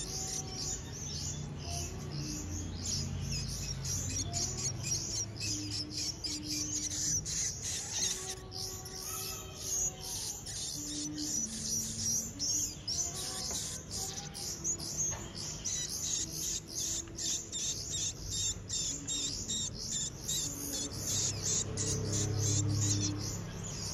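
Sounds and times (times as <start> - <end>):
faint background music: 0.0 - 23.9
nestlings cheeping: 0.0 - 23.9.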